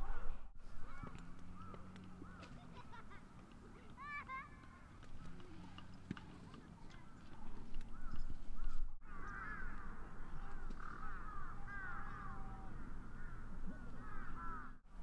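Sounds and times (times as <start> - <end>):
birds calling: 0.1 - 14.8.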